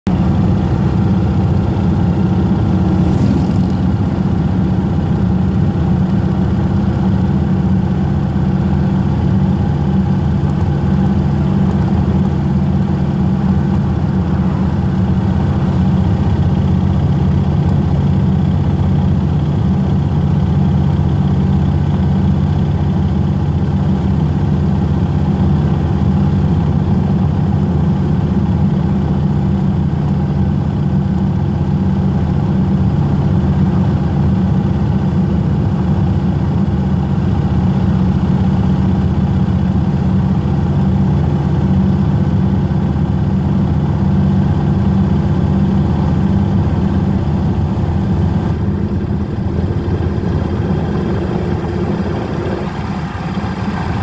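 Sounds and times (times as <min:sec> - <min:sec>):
motorcycle engine cruising: 0:00.1 - 0:28.8, 0:36.2 - 0:54.0.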